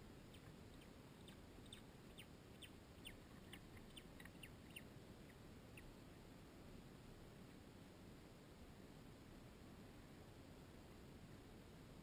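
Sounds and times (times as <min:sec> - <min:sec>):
bird chick peeping: 0:00.2 - 0:06.0.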